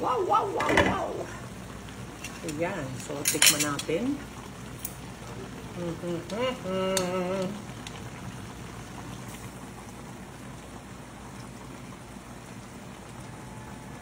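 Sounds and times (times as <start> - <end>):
sauce bubbling in a frying pan: 0.0 - 14.0
person humming: 5.7 - 7.6.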